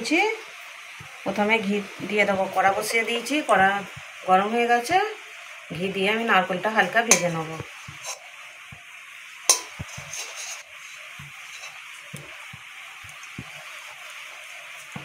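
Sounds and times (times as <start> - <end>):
ghee sizzling in a metal pan: 0.0 - 15.0
spatula scraping and knocking pan: 6.8 - 8.8, 9.5 - 13.7
spatula tapping on pan: 9.5 - 10.1.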